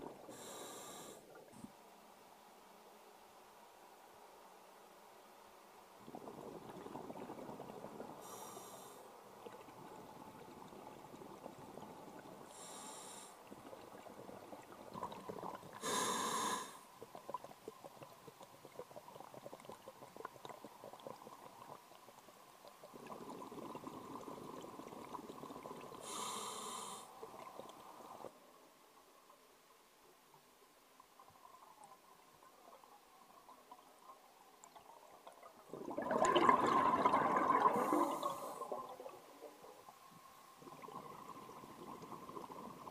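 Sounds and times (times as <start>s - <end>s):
hissing breaths through regulator: 0.3s - 1.2s, 12.5s - 13.4s, 15.8s - 16.8s, 26.0s - 27.2s
regulator bubbling underwater: 34.7s - 39.5s.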